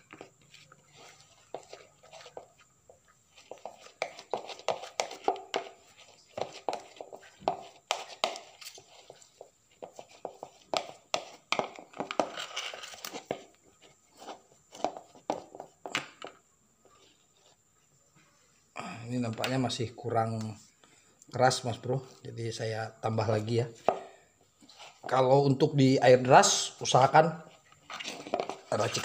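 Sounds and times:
metal spoon scraping plastic bowl: 27.6 - 29.0.

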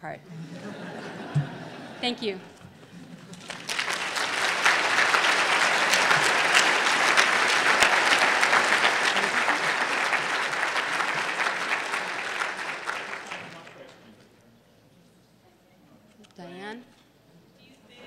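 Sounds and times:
audience applauding: 2.9 - 14.0.

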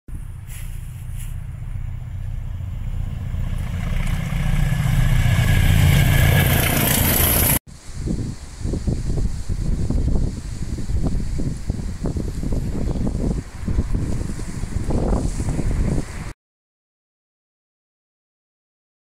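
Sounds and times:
diesel locomotive engine rumble: 0.1 - 16.3
wind buffeting microphone: 0.1 - 16.4
train wheels on rails: 0.3 - 7.6.

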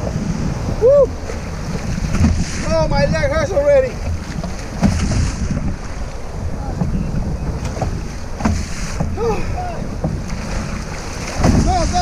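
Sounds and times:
surf slapping against kayak hull: 0.0 - 12.0
wind rumbling on microphone: 0.0 - 12.0
person shouting: 9.2 - 9.9.

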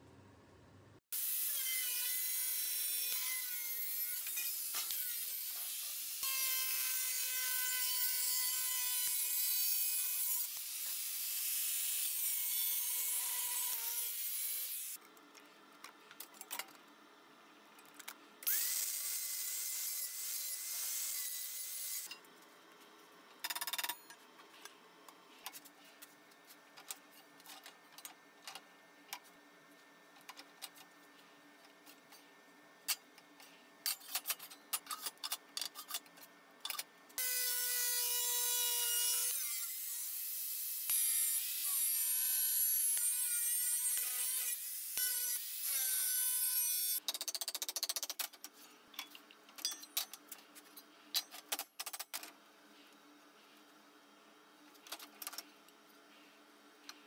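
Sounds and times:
angle grinder cutting sheet steel: 1.2 - 15.0, 18.5 - 22.1, 37.2 - 47.0.

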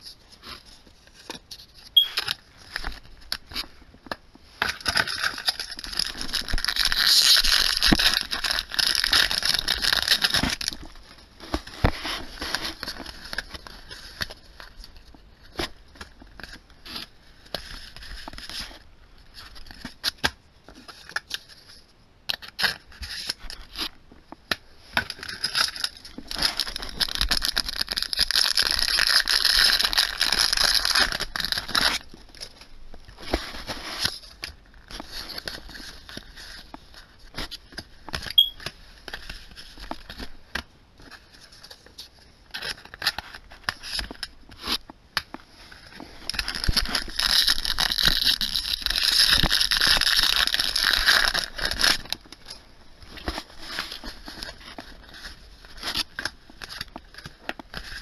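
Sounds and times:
foil wrapper crinkling: 4.6 - 11.0, 25.0 - 32.7, 45.9 - 58.0.

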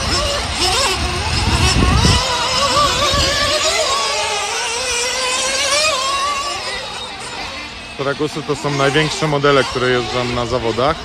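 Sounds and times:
small model car engines buzzing: 0.0 - 11.0.

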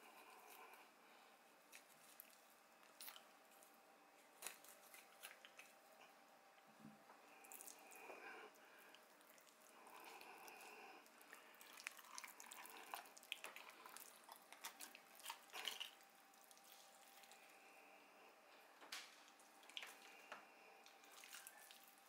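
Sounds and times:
fingers in wet flesh: 20.8 - 22.0.

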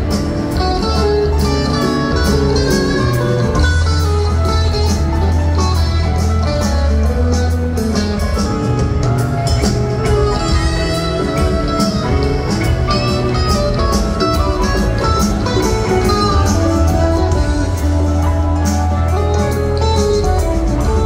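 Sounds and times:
bass line: 0.0 - 21.0
drum kit with cymbals: 0.0 - 21.0
electric guitars: 0.0 - 21.0.

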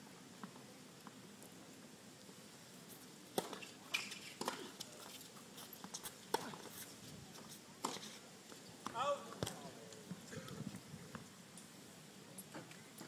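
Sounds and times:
tennis ball hit and bouncing: 3.3 - 4.7, 6.3 - 6.6.

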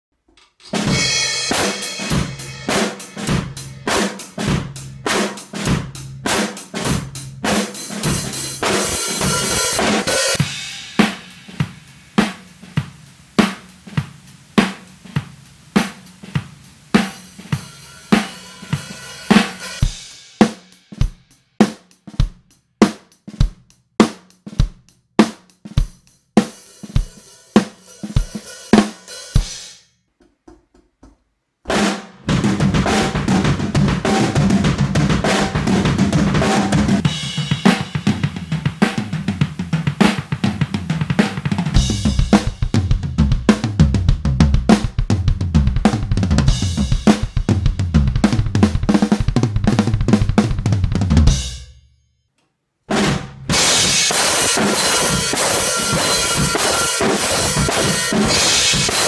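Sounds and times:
acoustic drum kit groove: 0.1 - 51.8, 52.9 - 59.0
cymbal crashes: 0.6 - 6.0, 8.0 - 20.6, 31.8 - 42.8, 53.5 - 59.0.

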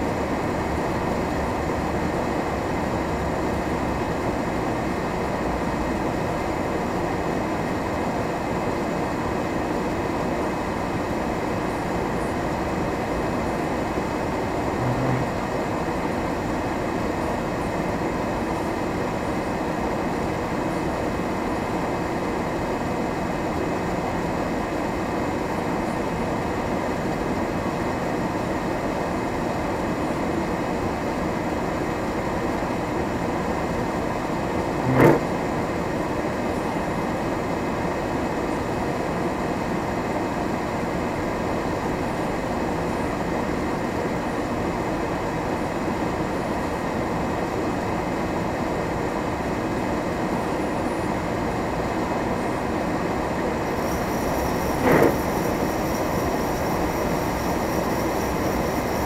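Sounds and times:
vehicle driving on snowy road: 34.7 - 35.3, 53.8 - 59.0
short sharp knock: 34.8 - 35.3.

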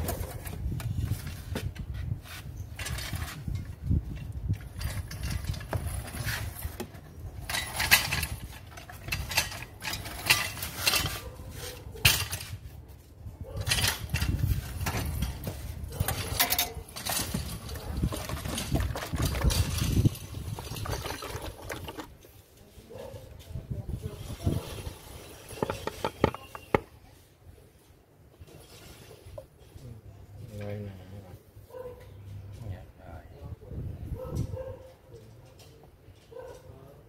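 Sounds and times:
clinks and knocks: 2.7 - 12.7, 13.5 - 22.4, 24.6 - 27.0.

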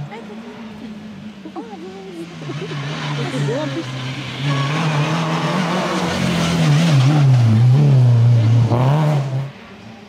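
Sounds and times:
rally car engine passing: 0.0 - 10.0.

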